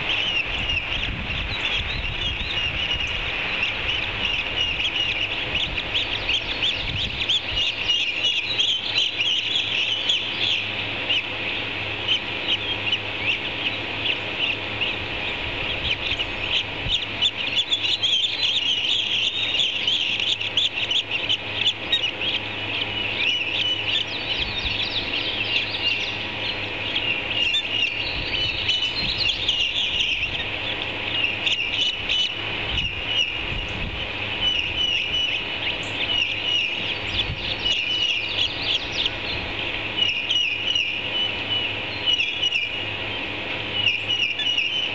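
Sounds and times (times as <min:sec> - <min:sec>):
ospreys chirping: 0:00.0 - 0:44.9.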